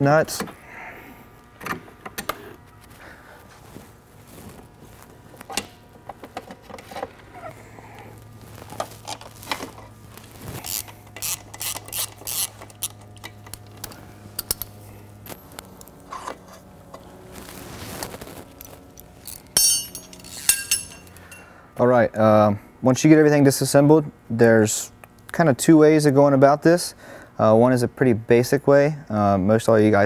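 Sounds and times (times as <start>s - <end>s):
steady low hum: 0.0s - 30.0s
wrench ratcheting clicks: 10.6s - 13.6s
metal clinks and knocks: 19.3s - 21.5s.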